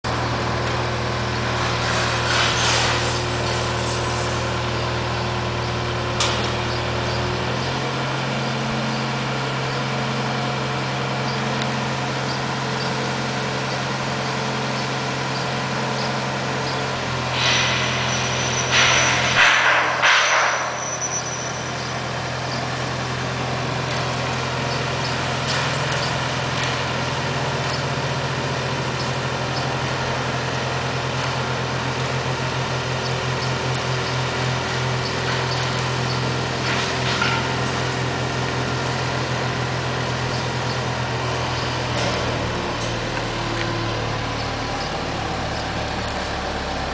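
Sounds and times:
diesel engine running: 0.0s - 46.9s
loud hissing bursts: 17.3s - 20.5s.

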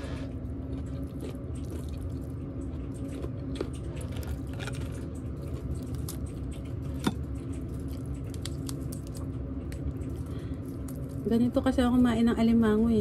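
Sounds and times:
chewing: 0.0s - 11.3s
crab shell cracking: 1.1s - 11.2s.

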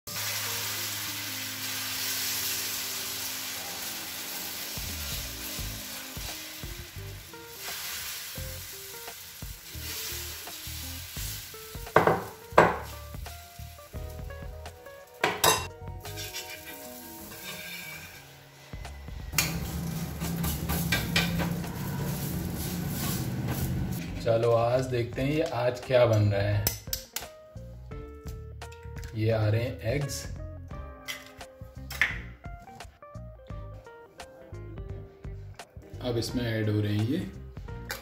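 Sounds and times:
batter sizzling on a hot pan: 0.1s - 15.2s, 16.0s - 18.6s, 19.4s - 23.9s.

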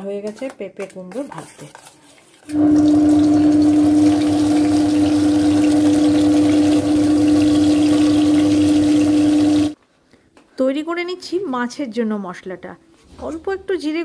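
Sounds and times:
mixer grinder motor humming: 2.5s - 9.8s.

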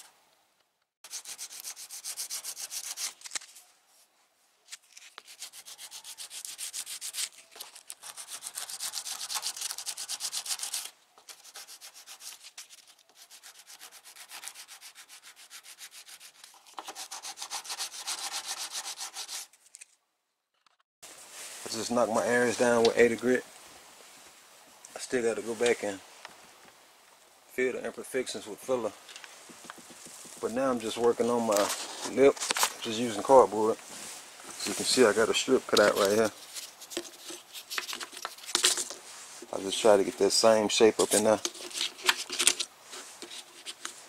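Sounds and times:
sandpaper rubbing: 1.0s - 3.6s, 4.8s - 19.6s, 34.0s - 44.0s.

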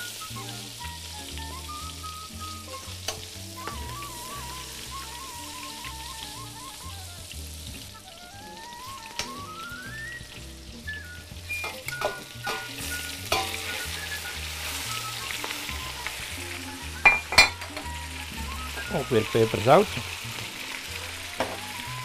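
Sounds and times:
beef sizzling in a pot: 0.0s - 22.0s
light background music: 0.0s - 22.0s
metallic clicks of tongs and pot: 11.6s - 13.6s.

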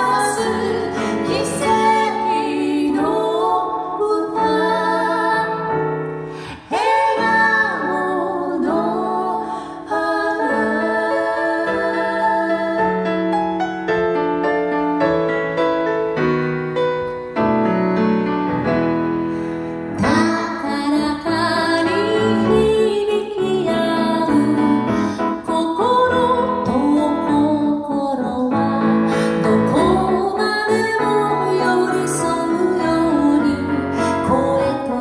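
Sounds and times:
woman singing: 0.0s - 5.6s, 6.5s - 12.8s, 20.0s - 35.0s
piano playing: 0.0s - 35.0s.

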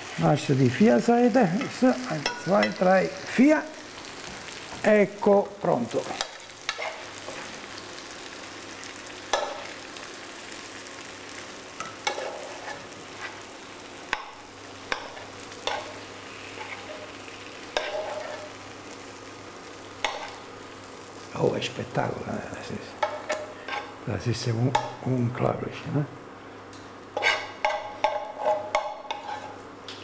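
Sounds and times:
metal spoon scraping frying pan: 11.8s - 13.4s, 15.0s - 17.1s, 17.8s - 18.5s, 27.2s - 29.6s.

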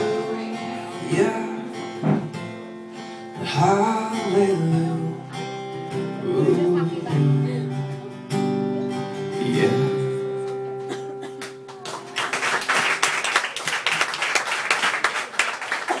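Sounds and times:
acoustic guitars strumming chords: 0.0s - 12.2s
audience applauding: 11.3s - 16.0s.

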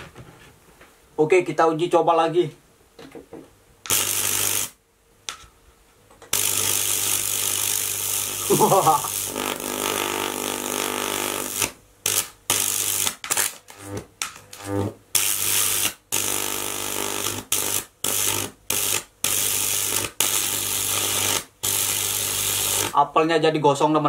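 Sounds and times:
electric arc buzzing and crackling: 3.8s - 4.8s, 6.1s - 23.3s.

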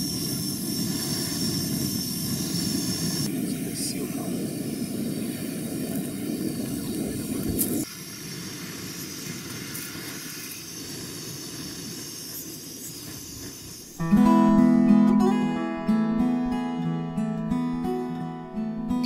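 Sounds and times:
water boiling in a pot: 0.0s - 14.0s
gas stove burner hissing: 0.0s - 18.2s
strummed acoustic guitar music: 14.0s - 19.0s.

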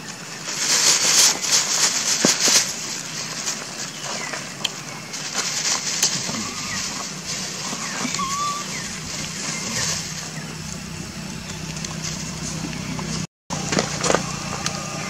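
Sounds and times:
low hum of distant engines: 0.0s - 15.0s
high squeak: 7.6s - 9.9s.

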